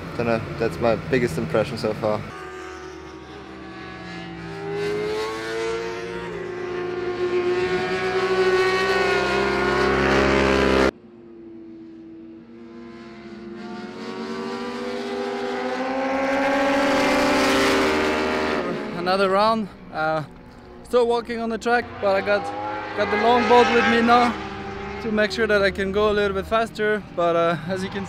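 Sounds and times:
racing motorbike engines passing: 0.0 - 28.0.

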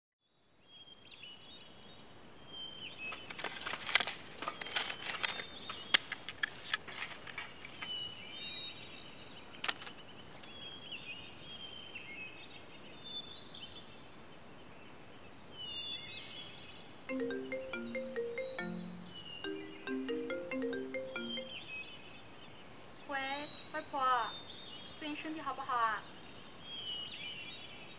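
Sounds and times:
birds chirping and twittering: 2.5 - 14.0, 15.6 - 27.9
sharp clicks and crackles: 3.1 - 7.9, 9.6 - 10.0.

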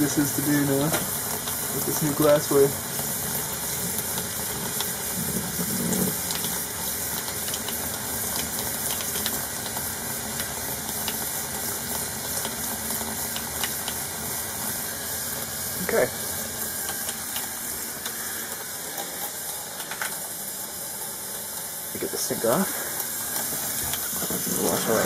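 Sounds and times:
tap water running into sink: 0.0 - 14.3, 23.0 - 25.0.

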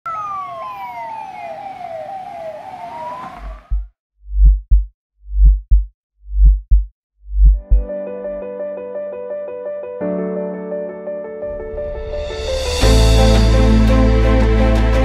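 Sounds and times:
emergency siren wailing: 0.0 - 3.8
heartbeat thumps: 3.5 - 7.9.

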